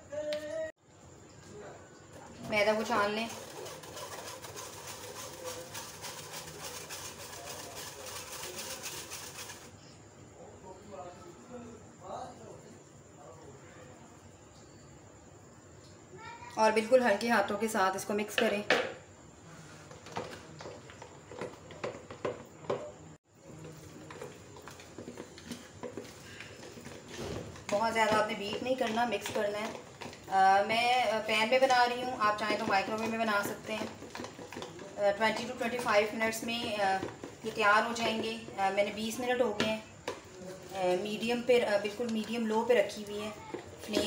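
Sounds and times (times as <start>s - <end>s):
utensil stirring batter in bowl: 2.5s - 9.9s, 23.4s - 44.0s
spoon rasping on mesh sieve: 3.3s - 9.8s.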